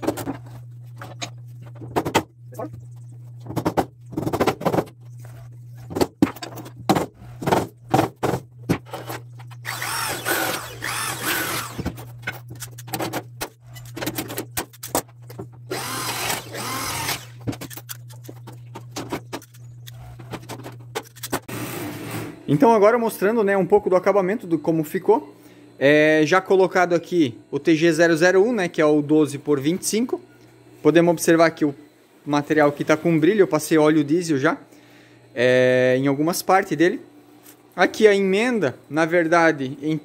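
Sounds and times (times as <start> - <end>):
electric drill drilling steel: 9.6 - 12.1, 15.7 - 17.5.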